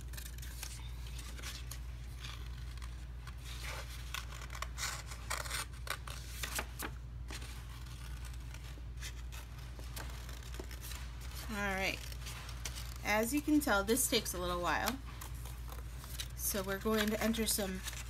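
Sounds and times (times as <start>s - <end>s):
paper rustling: 0.0s - 18.0s
scissors snipping paper: 14.6s - 18.0s.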